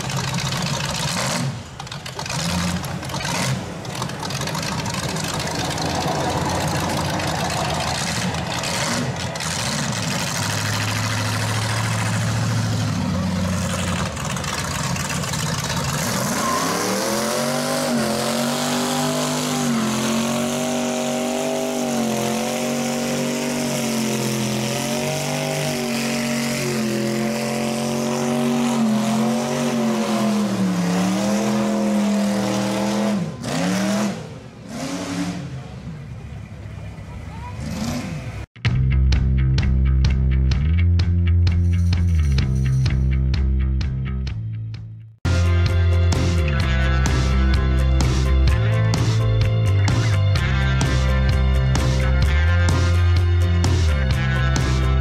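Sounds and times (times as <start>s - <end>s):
tyres spinning: 0.0s - 17.2s
truck engine revving: 0.0s - 38.6s, 45.3s - 55.0s.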